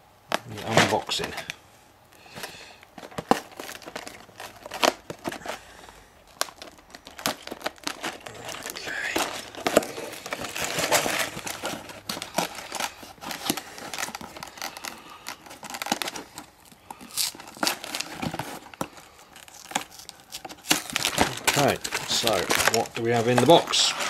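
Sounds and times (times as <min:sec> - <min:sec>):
cardboard box tearing and crinkling: 0:02.4 - 0:24.0.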